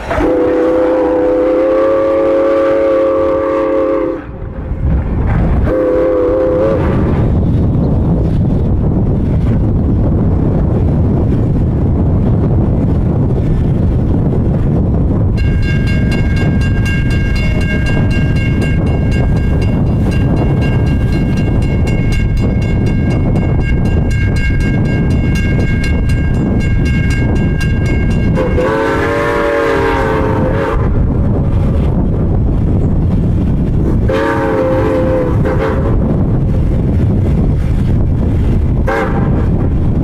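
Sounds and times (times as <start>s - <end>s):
steam whistle chord: 0.0s - 4.4s, 27.7s - 30.9s, 34.1s - 36.0s
train rushing: 0.0s - 40.0s.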